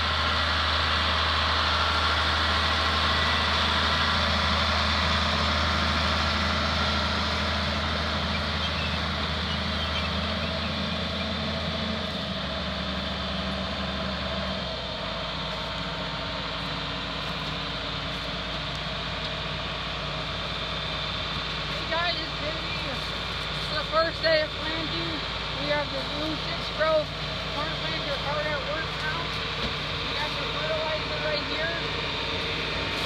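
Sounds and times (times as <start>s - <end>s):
tractor diesel engine idling: 0.0s - 33.0s.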